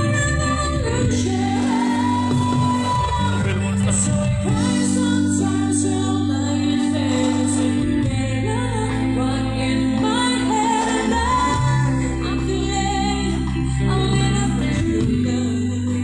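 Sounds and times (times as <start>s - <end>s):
song with singing voice: 0.0s - 16.0s.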